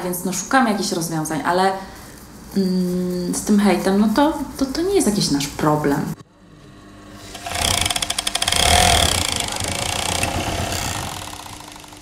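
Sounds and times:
sewing machine stitching: 7.3s - 12.0s.

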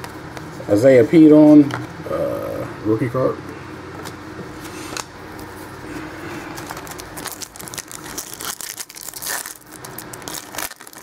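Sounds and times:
foil wrapper crinkling: 6.5s - 11.0s.

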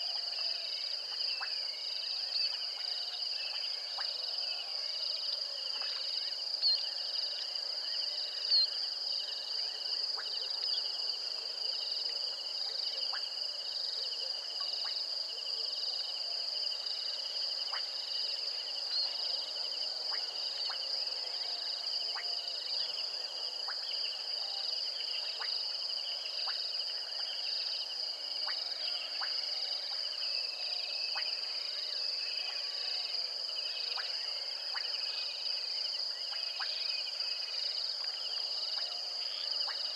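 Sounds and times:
insects chirring: 17.5s - 39.9s.

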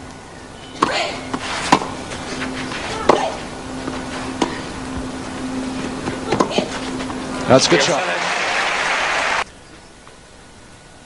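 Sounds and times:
low constant hum: 0.0s - 11.0s
racket hitting tennis ball: 0.8s - 7.2s
crowd murmur: 0.8s - 9.4s.

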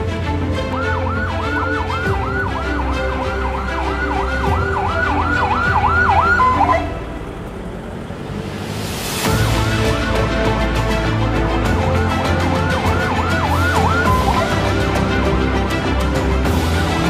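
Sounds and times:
background music: 0.0s - 17.0s
ambulance siren yelping: 0.5s - 7.4s, 12.1s - 15.5s.

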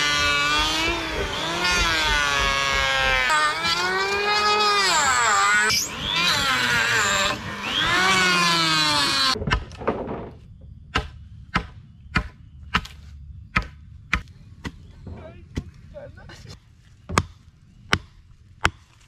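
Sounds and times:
hatchet chopping wood: 0.0s - 5.2s, 5.8s - 10.2s, 10.9s - 14.8s, 15.5s - 15.8s, 17.1s - 19.0s
electric planer whining: 0.0s - 9.4s.

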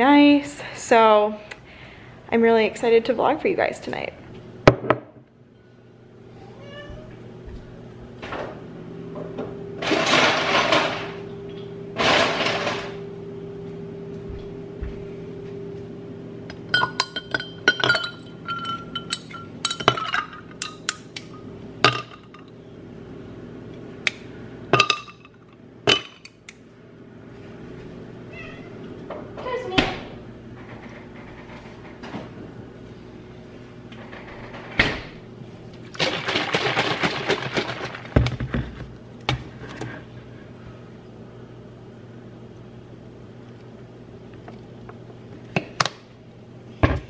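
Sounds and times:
cat meowing faintly: 6.4s - 7.2s, 28.3s - 28.9s.

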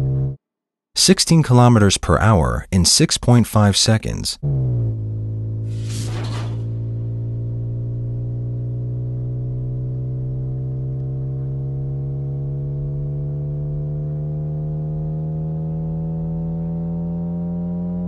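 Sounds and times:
synthesized engine hum: 0.0s - 0.4s, 4.4s - 18.0s.

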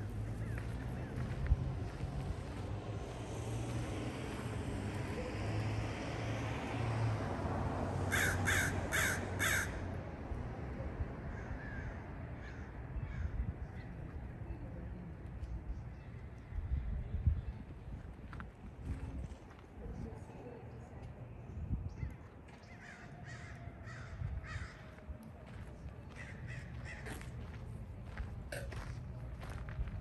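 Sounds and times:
crow cawing: 8.1s - 9.8s, 11.3s - 13.3s, 22.8s - 24.9s, 26.1s - 27.2s.

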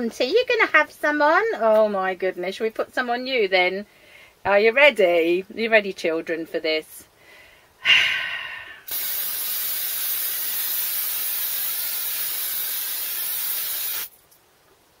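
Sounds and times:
aerosol can spraying hiss: 8.8s - 14.2s.

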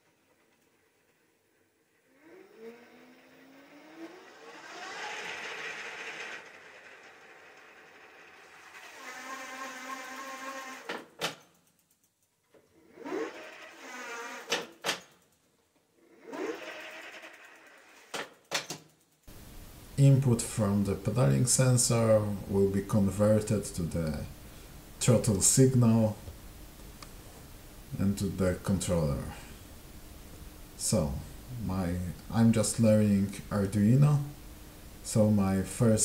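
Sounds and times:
hub motor whining: 0.3s - 12.0s, 12.6s - 14.8s, 16.0s - 18.5s.

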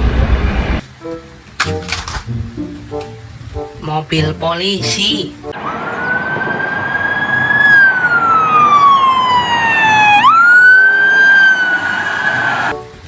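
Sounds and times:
police siren wailing: 5.6s - 12.8s.

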